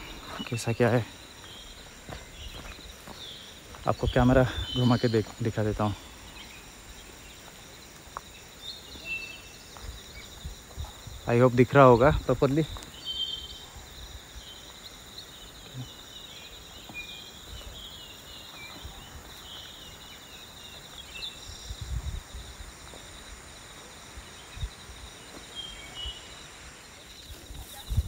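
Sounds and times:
bird chirps: 0.0 - 21.8
high insect drone: 0.0 - 28.0.

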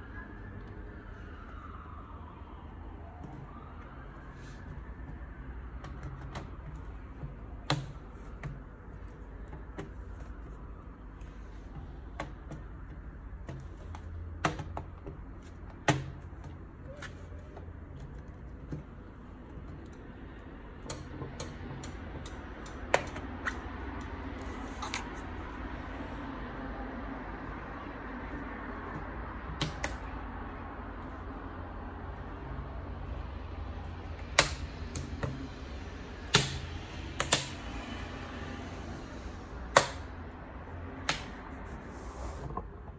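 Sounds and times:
plastic clips snapping into place: 36.3 - 37.6.

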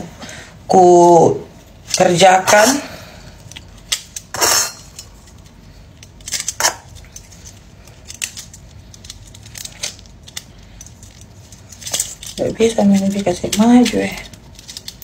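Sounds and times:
metal bangles clinking: 3.4 - 15.0.

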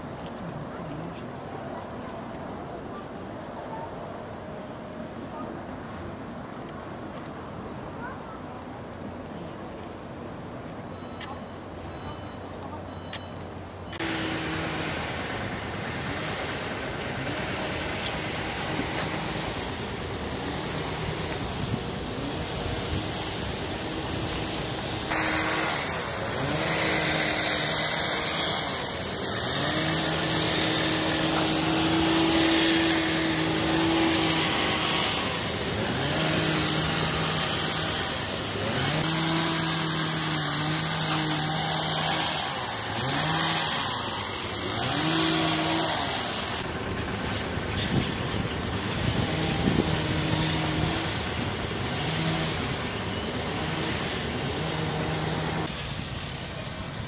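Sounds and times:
small engine revving: 13.9 - 55.8.

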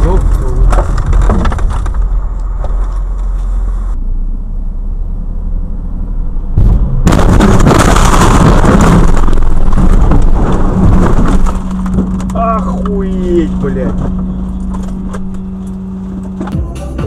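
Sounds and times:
car driving: 0.0 - 17.0
loud car crash: 6.5 - 14.2.

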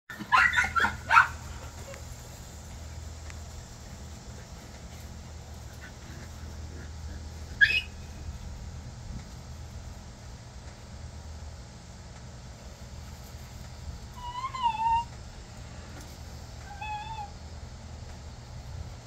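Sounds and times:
puppies yapping: 0.1 - 2.6, 4.4 - 8.2, 14.2 - 15.1, 16.6 - 17.4
steady low hum: 0.1 - 19.0.

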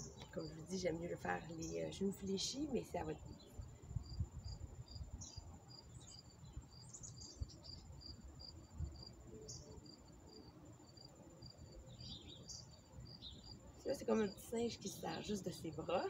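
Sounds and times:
insect chirping: 0.0 - 16.0.

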